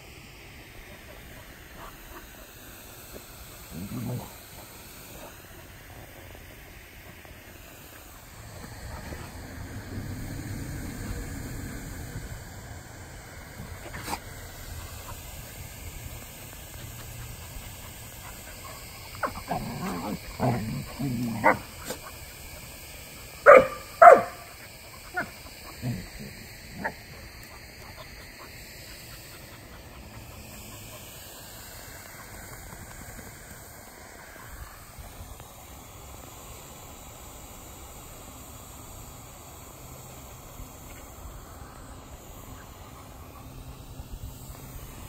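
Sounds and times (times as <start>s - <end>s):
dogs grumbling play noises: 3.2s - 5.5s, 8.0s - 22.7s, 24.2s - 28.5s
dog barking loudly: 18.6s - 21.8s, 23.4s - 25.3s
dog yipping: 23.5s - 24.4s.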